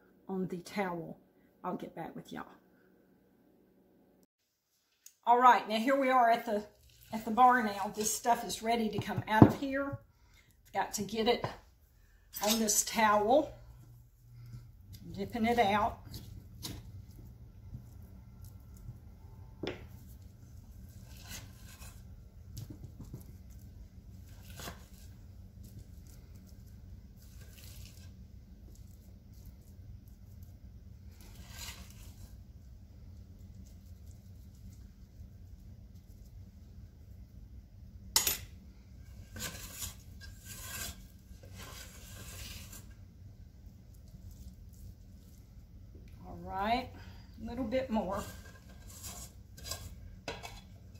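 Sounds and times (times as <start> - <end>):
metal spoons scraping pot: 12.3 - 13.1, 39.3 - 42.9, 47.8 - 50.7.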